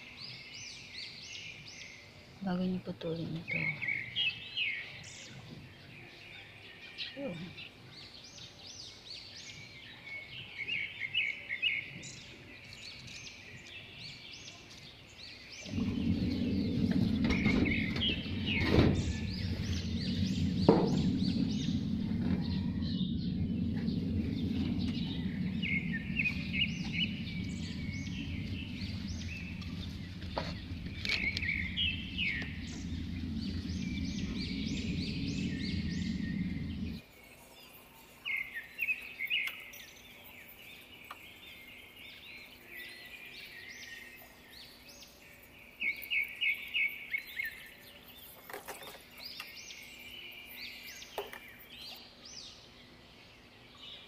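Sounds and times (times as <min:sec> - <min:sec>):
small birds chirping: 0:00.0 - 0:54.0
steady low rumble: 0:15.6 - 0:37.0.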